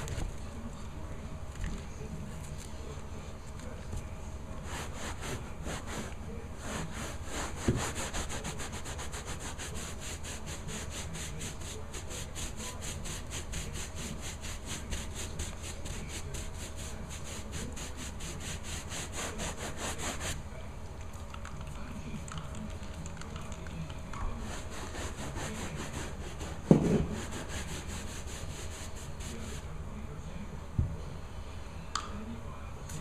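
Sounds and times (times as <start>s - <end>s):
hand scrubbing: 4.6s - 20.4s, 24.3s - 29.6s.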